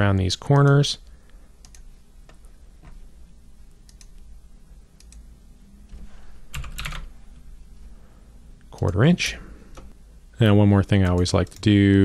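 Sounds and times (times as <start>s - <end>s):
faint low hum: 0.0s - 12.0s
computer mouse clicks: 1.6s - 3.0s, 3.8s - 4.2s, 5.0s - 5.2s.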